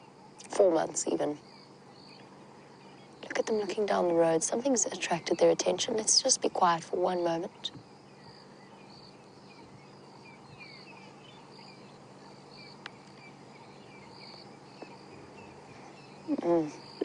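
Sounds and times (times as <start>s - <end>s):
insect trilling: 0.0s - 17.0s
steady low hum: 0.0s - 17.0s
small bird chirps: 7.3s - 17.0s.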